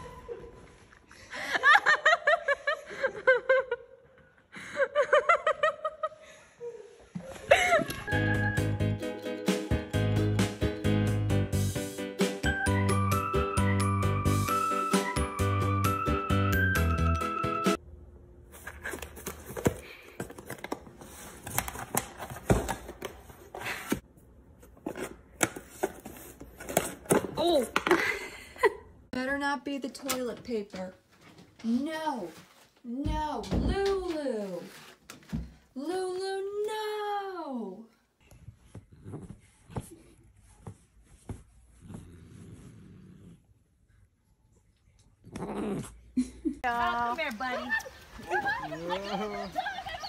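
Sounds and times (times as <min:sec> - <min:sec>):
music: 0:08.0 - 0:17.8
high-pitched laughter: 0:47.6 - 0:50.0.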